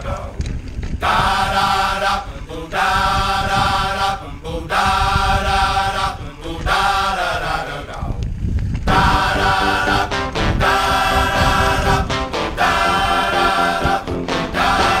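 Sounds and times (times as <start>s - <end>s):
choir-like chanting: 1.0s - 8.2s, 8.9s - 15.0s
background music: 8.9s - 15.0s.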